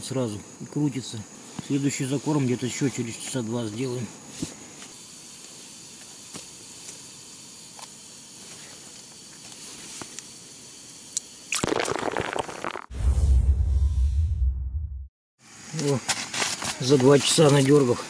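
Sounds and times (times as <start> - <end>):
faint hiss: 0.0 - 11.6.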